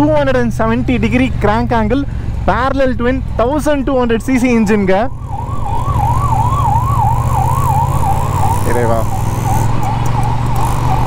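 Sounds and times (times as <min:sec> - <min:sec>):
motorcycle engine drone: 0:00.0 - 0:11.0
emergency siren wailing: 0:04.2 - 0:11.0.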